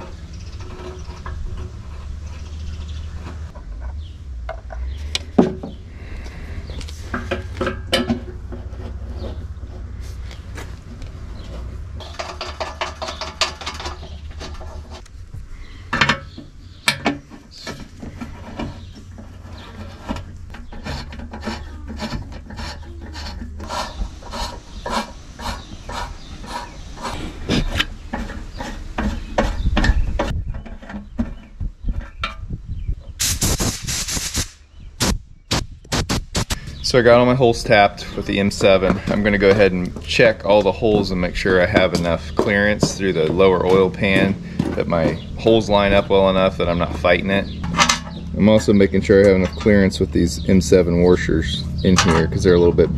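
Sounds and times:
tap scraping and clicking in metal: 0:06.8 - 0:09.4, 0:12.0 - 0:15.1, 0:47.5 - 0:48.4
compressed air hiss: 0:33.2 - 0:34.6.

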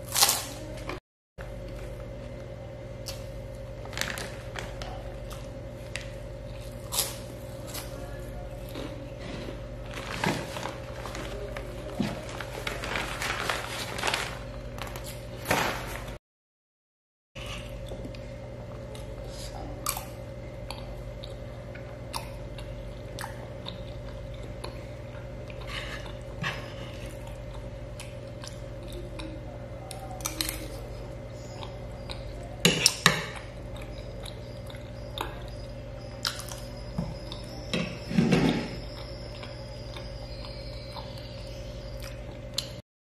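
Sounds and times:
steady background hum: 0:00.0 - 0:16.2, 0:17.4 - 0:42.8
person chewing food: 0:17.5 - 0:38.1, 0:38.7 - 0:42.8.

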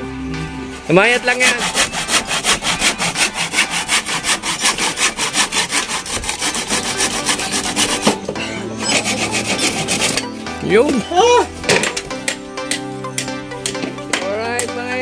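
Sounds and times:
hand saw cutting wood: 0:00.9 - 0:10.4.

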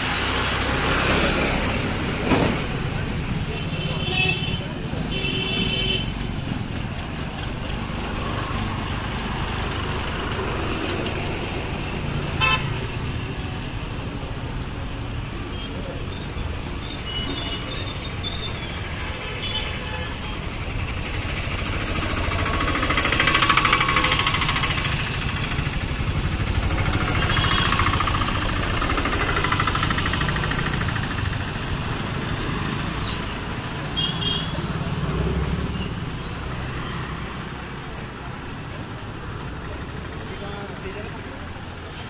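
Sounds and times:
vehicles passing close by: 0:00.0 - 0:42.0
background engine noise: 0:19.9 - 0:42.0.

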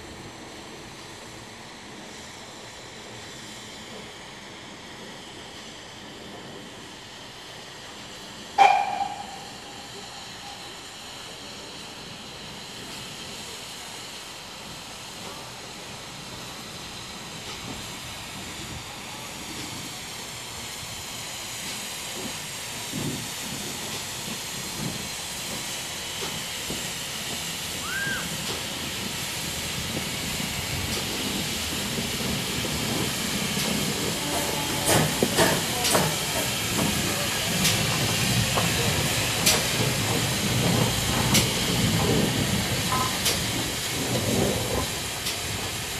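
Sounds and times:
steam locomotive hissing: 0:00.0 - 0:45.9
sharp metallic knocks: 0:08.6 - 0:09.8.

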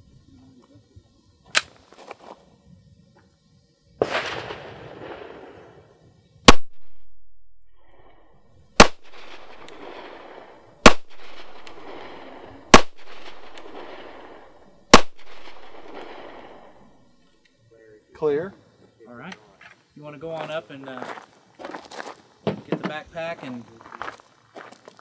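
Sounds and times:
pistol shots with echo: 0:04.0 - 0:05.6, 0:06.5 - 0:07.1, 0:08.7 - 0:17.0
soft burst of noise: 0:07.7 - 0:22.4.

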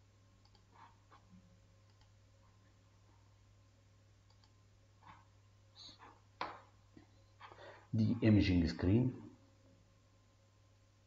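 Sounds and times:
faint clicks: 0:00.4 - 0:00.7, 0:01.8 - 0:02.2, 0:04.2 - 0:04.6.

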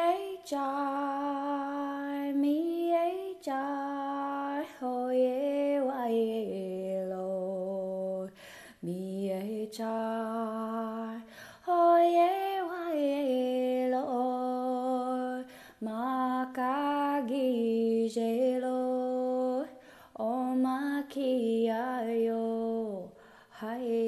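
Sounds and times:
woman singing unaccompanied: 0:00.0 - 0:24.0.

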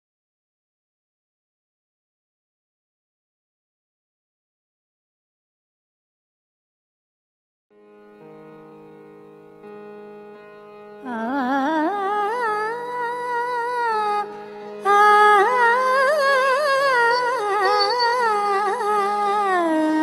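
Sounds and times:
person singing wordless notes: 0:11.0 - 0:20.0.

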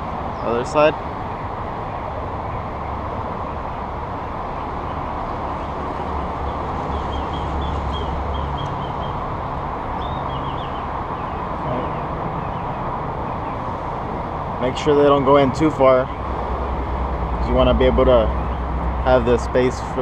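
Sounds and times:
outdoor background rumble: 0:00.0 - 0:20.0
bird chirping: 0:04.5 - 0:09.3, 0:09.9 - 0:13.8, 0:17.2 - 0:18.7.

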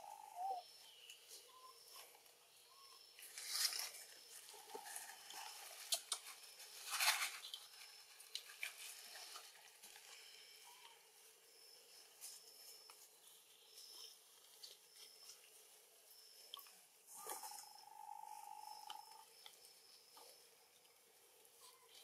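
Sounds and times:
rustling in grass and leaves: 0:03.1 - 0:16.1.

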